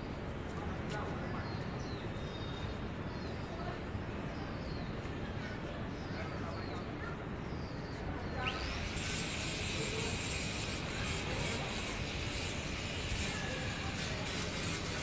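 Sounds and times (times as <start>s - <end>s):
steady hiss and hum: 8.5s - 15.0s.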